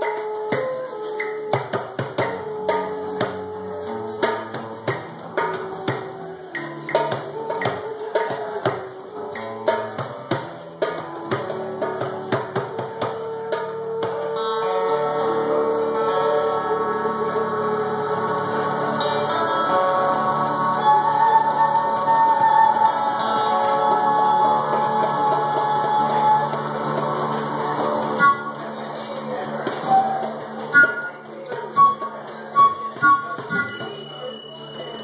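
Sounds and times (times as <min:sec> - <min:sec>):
wooden flute long notes: 0:00.0 - 0:04.9, 0:11.0 - 0:35.0
hand drum strikes: 0:00.0 - 0:14.4, 0:23.4 - 0:34.1.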